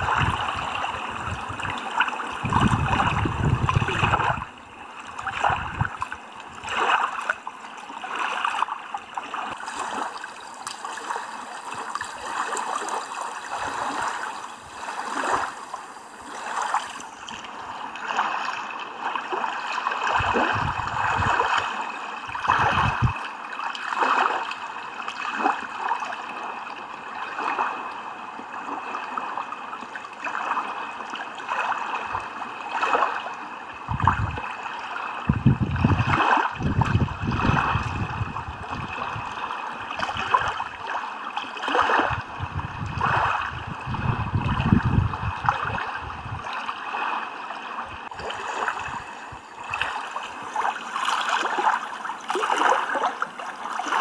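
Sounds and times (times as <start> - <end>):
small waves lapping on stones: 0.0 - 54.0.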